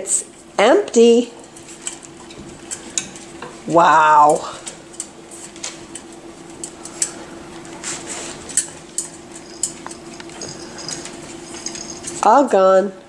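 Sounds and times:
faint steady hum: 0.0s - 13.0s
puppies licking a metal pan: 7.8s - 12.3s
metal clinks and taps: 8.6s - 12.2s.

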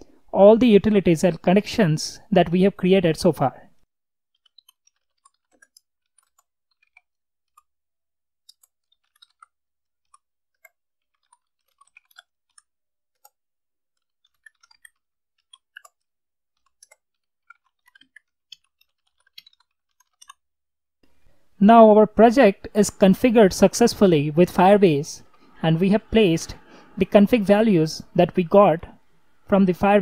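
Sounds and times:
faint keyboard typing: 4.3s - 7.7s, 8.4s - 20.4s.

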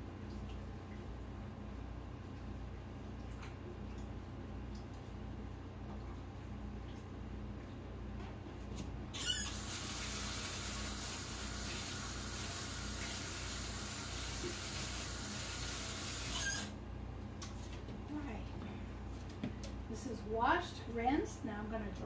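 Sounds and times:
tap water running: 9.1s - 16.8s.

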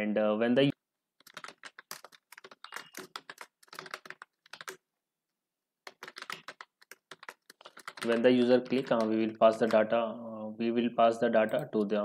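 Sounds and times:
typing on computer keyboard: 1.2s - 4.8s, 5.8s - 9.9s.

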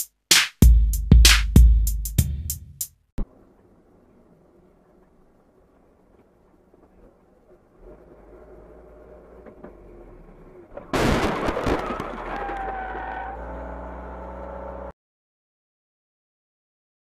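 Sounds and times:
road and engine hum: 3.2s - 15.0s
loud car crash impact: 10.7s - 13.1s.

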